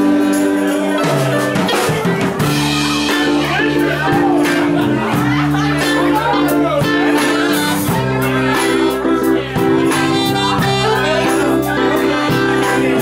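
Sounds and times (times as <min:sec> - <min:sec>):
live band playing rock ballad: 0:00.0 - 0:13.0
person singing: 0:00.0 - 0:13.0
saxophone: 0:06.3 - 0:13.0.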